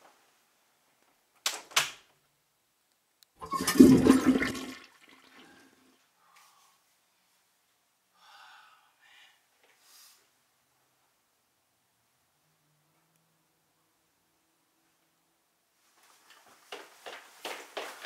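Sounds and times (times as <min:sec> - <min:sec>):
toilet flushing: 0:03.4 - 0:05.9.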